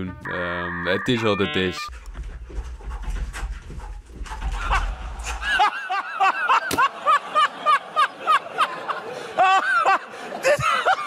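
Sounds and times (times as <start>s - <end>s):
person laughing in high bursts: 4.6s - 8.7s.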